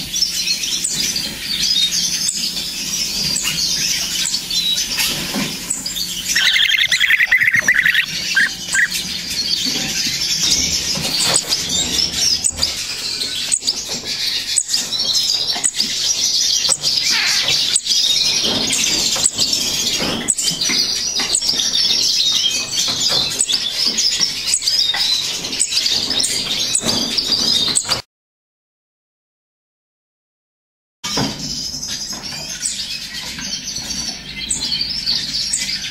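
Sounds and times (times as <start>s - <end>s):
young birds begging calls: 0.6s - 15.6s, 16.6s - 17.9s.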